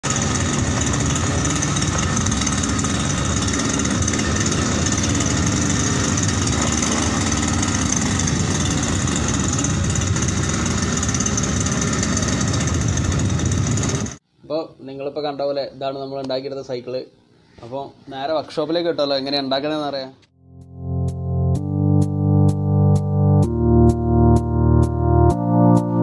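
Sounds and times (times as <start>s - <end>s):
two-stroke engine running: 0.0s - 14.2s.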